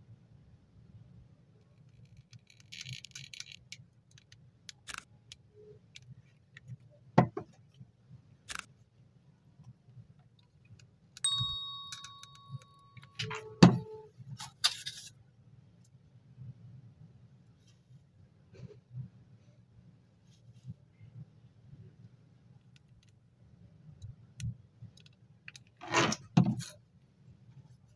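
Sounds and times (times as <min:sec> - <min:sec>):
notification bell chime: 0:11.3 - 0:14.1.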